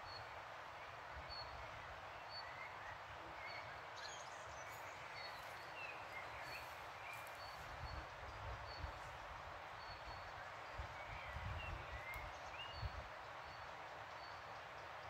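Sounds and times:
small birds chirping: 2.2 - 15.0.

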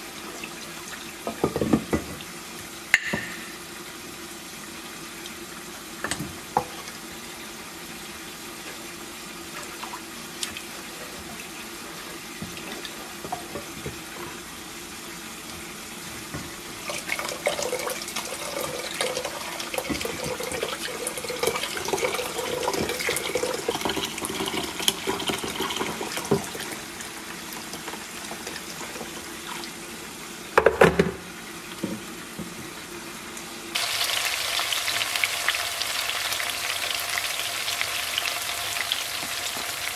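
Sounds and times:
frying sizzle: 0.0 - 39.9
water pouring and splashing: 15.5 - 29.9.

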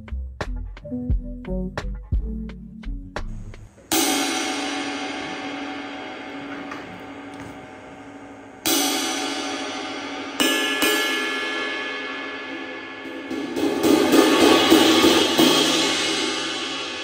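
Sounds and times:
ride cymbal struck with drumstick: 3.9 - 17.0.

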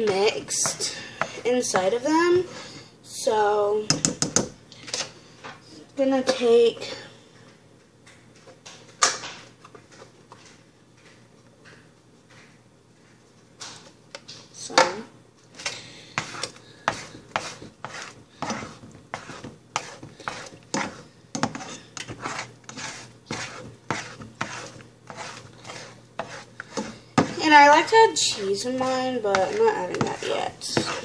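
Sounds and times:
utensil scraping frying pan: 0.0 - 2.2, 15.6 - 31.0.

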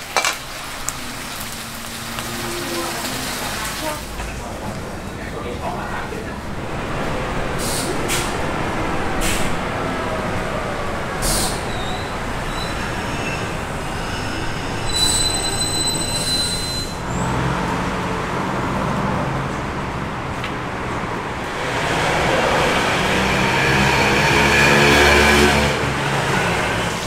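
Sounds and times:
street traffic: 0.0 - 27.0
vehicle brakes squealing: 11.2 - 17.7.

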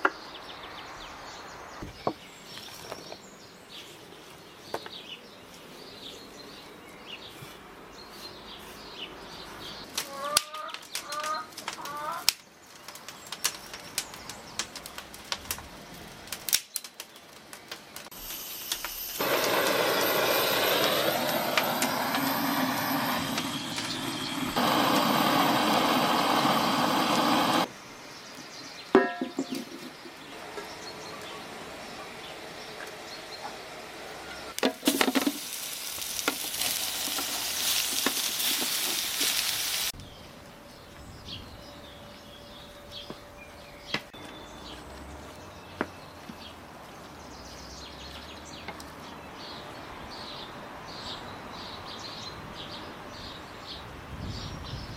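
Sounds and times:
small birds chirping: 0.0 - 18.2, 21.3 - 34.6
firewood clacking: 9.9 - 22.4, 34.6 - 39.6
gas torch flame hissing: 18.1 - 27.7, 34.8 - 40.0
sharp metallic clank: 29.0 - 29.6.

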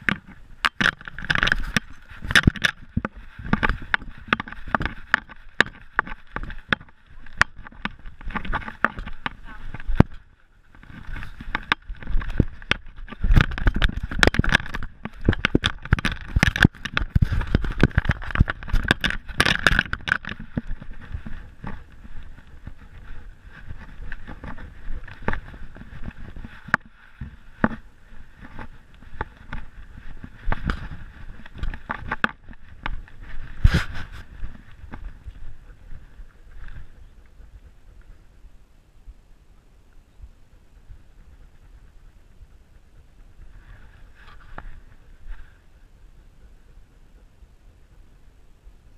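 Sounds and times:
camera handling knocks and scrapes: 0.0 - 10.2, 10.8 - 27.8, 28.4 - 35.1.

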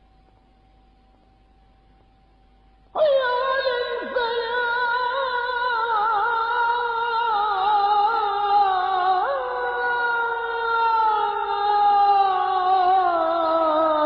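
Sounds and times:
man chanting call to prayer: 3.0 - 14.0.

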